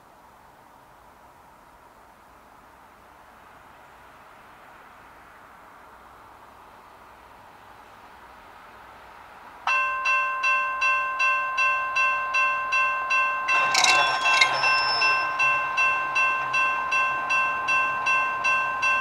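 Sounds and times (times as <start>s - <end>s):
crossing warning bell dinging: 10.1s - 19.0s.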